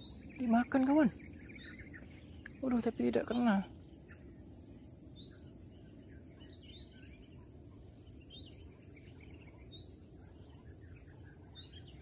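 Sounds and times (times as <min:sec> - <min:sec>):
rising bird chirp: 0:00.0 - 0:04.5.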